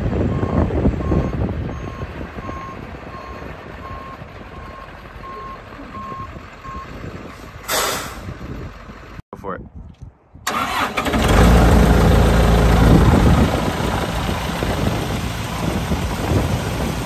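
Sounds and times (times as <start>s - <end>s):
diesel truck engine running: 0.0s - 9.2s, 10.4s - 17.0s
truck backup alarm beeping: 0.3s - 7.2s
air brake hiss: 7.6s - 8.3s.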